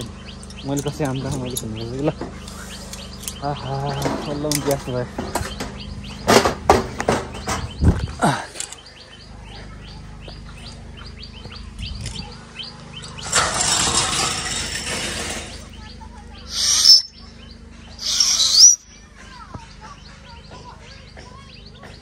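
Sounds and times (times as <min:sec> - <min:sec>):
birds chirping: 0:00.0 - 0:22.0
high hand whistles: 0:16.5 - 0:17.2, 0:18.0 - 0:19.0.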